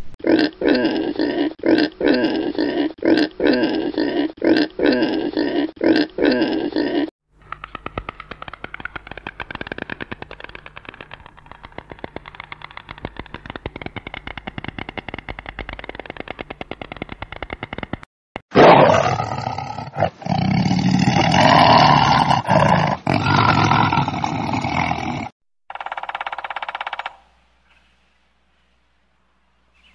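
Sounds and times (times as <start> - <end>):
stork clattering its bill: 7.3 - 18.1, 25.7 - 27.3
tiger roaring: 18.5 - 25.3.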